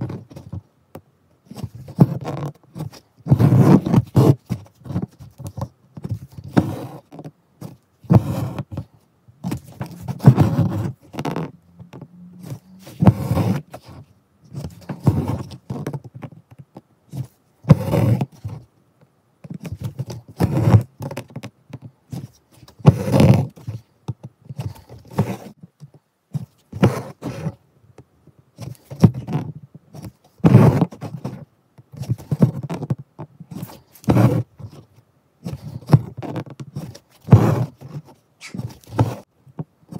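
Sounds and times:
fingers rubbing cloth: 1.5s - 5.5s, 6.1s - 8.8s, 9.4s - 16.0s, 22.1s - 23.7s, 33.5s - 34.8s, 35.4s - 39.3s
thread pulled through fabric: 9.4s - 16.0s, 38.4s - 39.3s.

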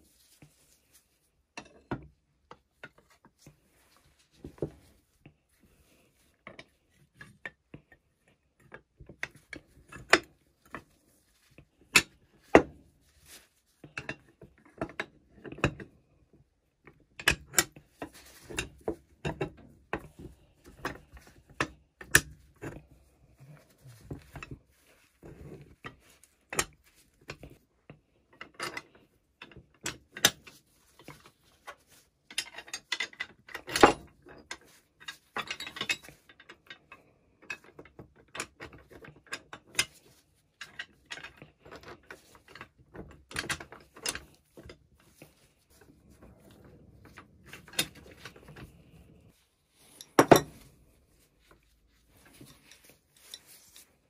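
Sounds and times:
metal parts clicking and knocking: 28.3s - 50.9s.

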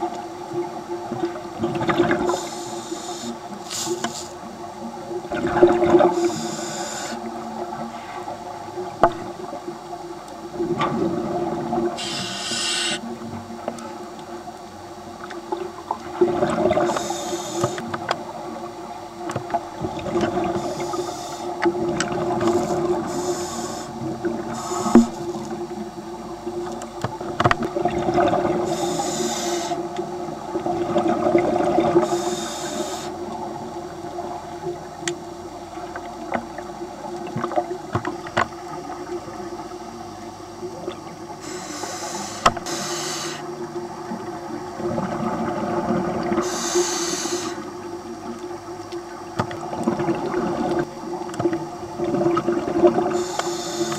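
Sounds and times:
low underwater hum: 0.0s - 53.9s
scuba regulator hissing: 2.3s - 4.4s, 6.1s - 7.2s, 12.0s - 13.0s, 22.5s - 25.2s, 28.7s - 29.8s, 32.0s - 33.2s, 41.4s - 43.5s, 46.4s - 47.7s, 53.2s - 53.9s.

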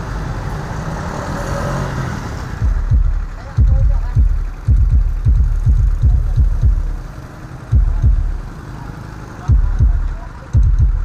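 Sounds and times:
deep bass drum beats: 2.6s - 8.6s, 9.4s - 11.0s.

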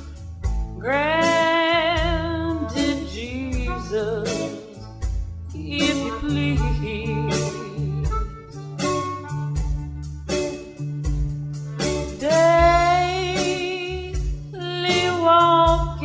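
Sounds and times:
guitar: 0.0s - 16.0s
regular beat: 0.0s - 16.0s
person singing with vibrato: 0.8s - 4.8s, 5.5s - 9.0s, 12.1s - 16.0s.

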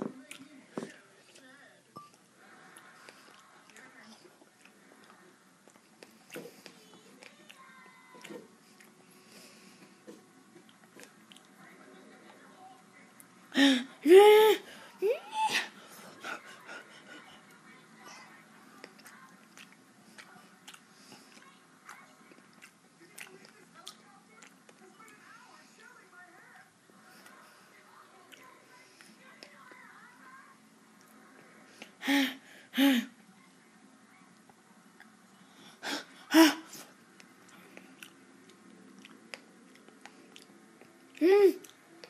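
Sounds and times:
chewing berries: 0.1s - 12.5s, 16.3s - 25.4s, 28.2s - 29.8s, 37.0s - 42.0s.

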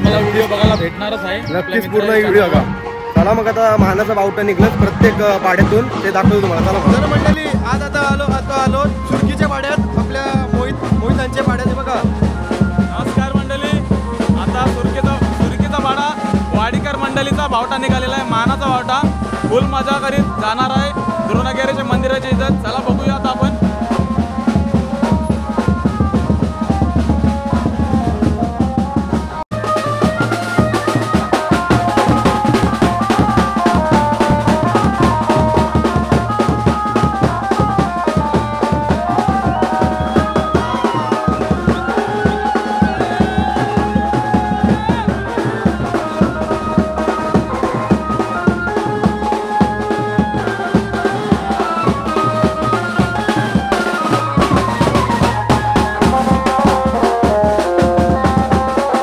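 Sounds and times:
dhol drums beating fast: 0.0s - 59.0s
wavering melody: 23.2s - 58.8s.

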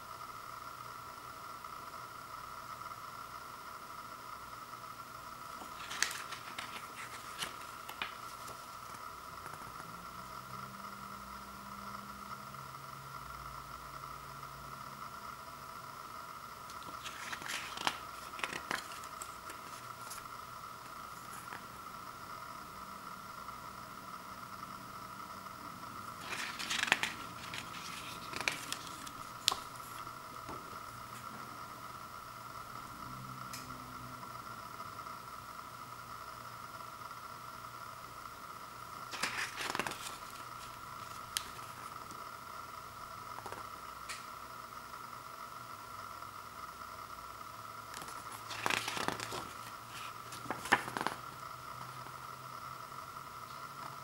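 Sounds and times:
background hum: 0.0s - 54.0s
paper pages rustling: 5.6s - 9.6s, 16.7s - 21.8s, 26.1s - 31.3s, 39.1s - 42.2s, 43.4s - 43.6s, 47.9s - 51.3s.

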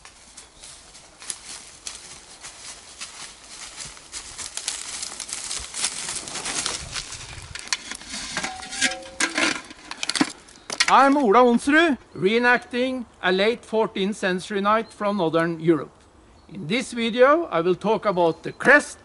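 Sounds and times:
hooves crunching on dry grass: 0.0s - 9.3s.

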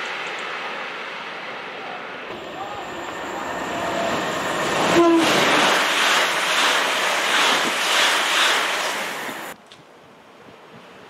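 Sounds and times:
train passing at speed: 0.0s - 9.6s.

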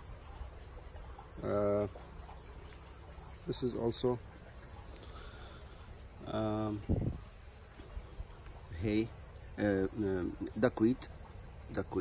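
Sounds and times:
cricket trilling: 0.0s - 12.0s.

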